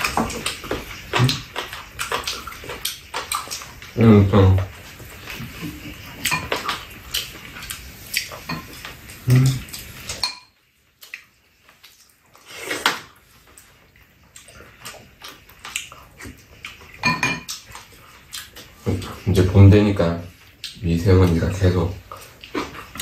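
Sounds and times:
people eating mouth noises: 0.0s - 10.2s, 11.0s - 19.5s, 21.9s - 23.0s
chopsticks tapping bowls and pan: 10.1s - 10.5s.

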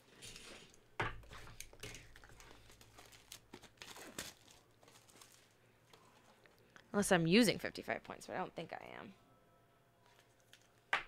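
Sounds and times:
card wrapper crinkling: 1.6s - 6.4s.

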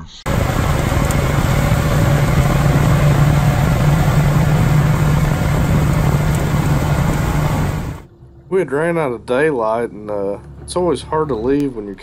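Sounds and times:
water rushing: 0.3s - 8.0s
outboard motor running: 0.3s - 8.1s.

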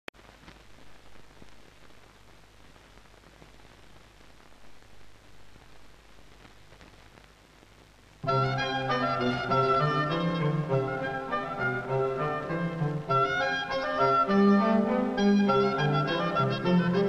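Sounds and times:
film soundtrack hiss and crackle: 0.1s - 17.0s
orchestral music with strings: 8.3s - 17.0s.

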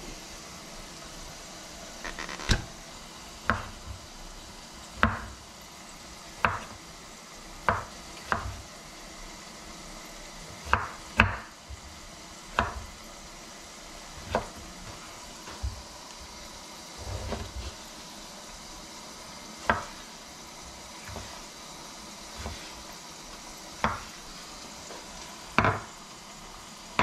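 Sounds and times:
knife chopping on cutting board: 3.4s - 3.8s, 5.0s - 5.4s, 6.4s - 6.8s, 7.6s - 8.6s, 10.6s - 11.5s, 12.6s - 13.0s, 14.2s - 15.8s, 19.6s - 20.0s, 21.0s - 21.5s, 23.8s - 24.2s, 25.5s - 25.9s.

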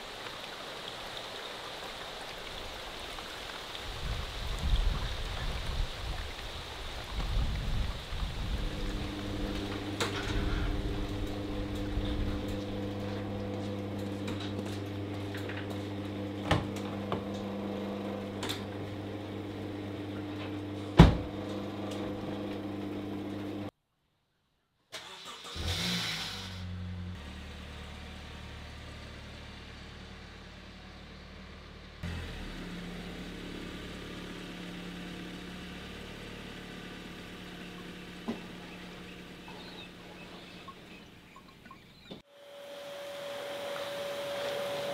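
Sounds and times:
car engine idling: 8.2s - 22.2s, 26.7s - 42.0s
engine starting: 10.0s - 11.1s, 24.9s - 26.8s.

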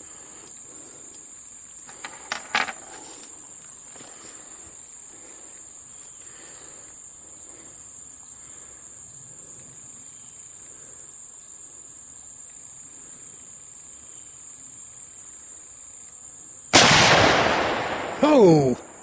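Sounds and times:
insect chorus drone: 0.0s - 19.0s.

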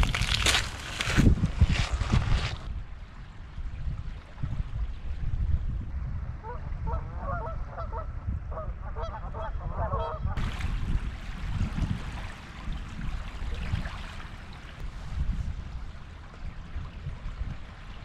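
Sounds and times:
wind rumble on microphone: 0.0s - 18.0s
geese honking: 6.5s - 10.4s.

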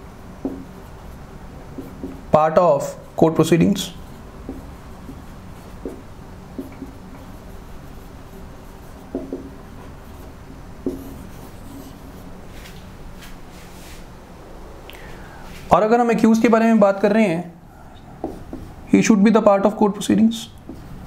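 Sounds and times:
steady low hum: 0.0s - 21.0s
marker pen writing on whiteboard: 0.2s - 12.8s, 18.0s - 18.8s, 20.6s - 20.9s
marker taps and squeaks: 0.4s - 0.7s, 1.8s - 2.2s, 4.4s - 6.0s, 6.6s - 7.3s, 9.0s - 9.6s, 18.2s - 18.7s.

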